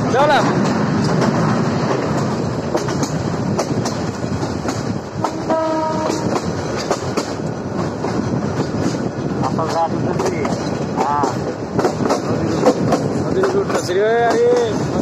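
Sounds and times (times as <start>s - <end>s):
train rumble: 0.0s - 15.0s
wheels clacking over rail joints: 0.0s - 15.0s
train horn blast: 5.2s - 6.4s.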